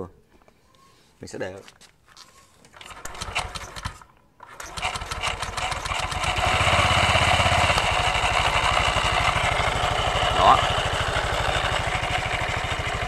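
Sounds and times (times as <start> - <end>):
scooter engine starting and idling: 2.7 - 13.0.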